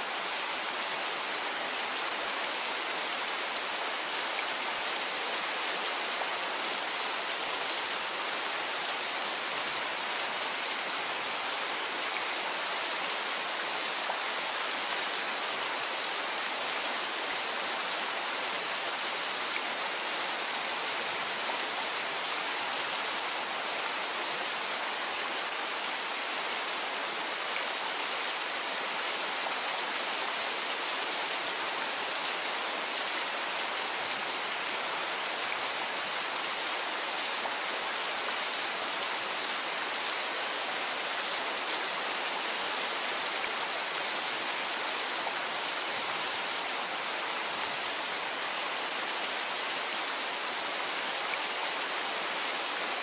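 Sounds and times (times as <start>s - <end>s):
steady rain hiss: 0.0s - 53.0s.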